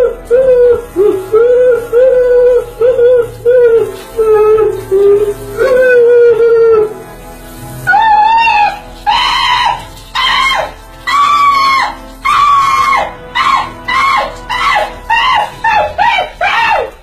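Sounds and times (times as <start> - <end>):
man yelping and shrieking: 8.0 - 17.0.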